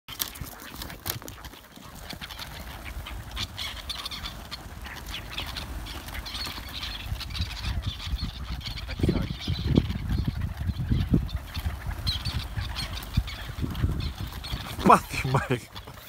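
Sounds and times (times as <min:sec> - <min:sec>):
fluttering wingbeats: 0:00.1 - 0:16.0.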